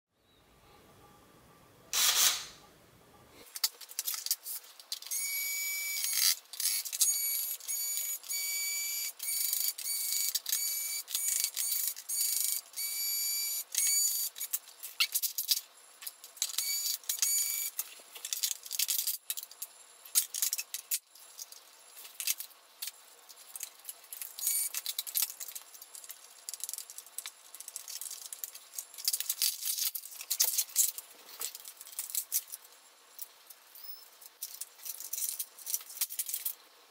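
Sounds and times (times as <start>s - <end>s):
screws and plastic rattling: 3.5s - 5.2s, 9.2s - 12.7s, 16.4s - 33.6s, 34.2s - 36.6s.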